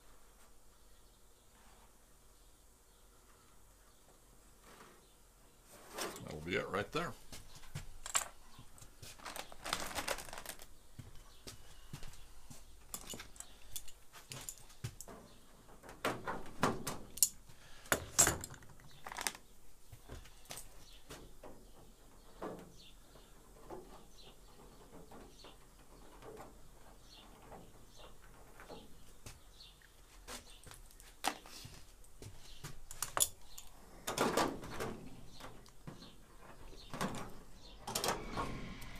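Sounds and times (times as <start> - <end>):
metal tools clinking: 8.0 - 8.4, 12.9 - 14.8, 18.0 - 19.3.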